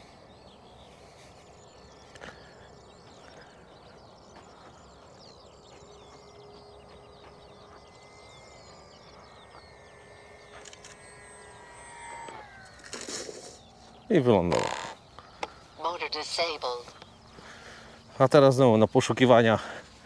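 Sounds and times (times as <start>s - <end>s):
birds chirping: 0.0s - 20.0s
electric model plane motor: 1.0s - 15.8s.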